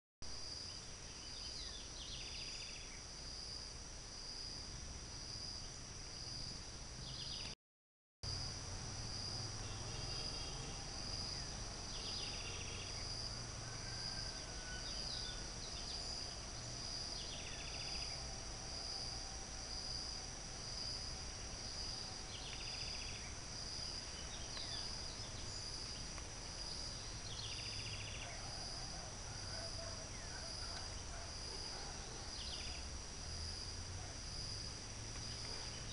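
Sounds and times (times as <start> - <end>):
insects chirring: 0.3 - 7.6, 8.3 - 35.9.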